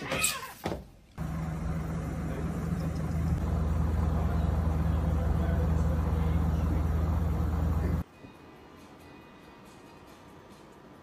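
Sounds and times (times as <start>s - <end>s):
air conditioner humming: 1.2s - 8.0s.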